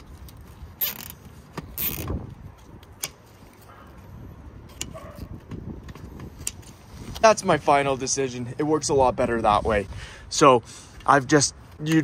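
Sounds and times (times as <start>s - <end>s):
cable tie ratcheting rasp: 0.2s - 3.6s
sharp handling clicks: 0.2s - 3.6s.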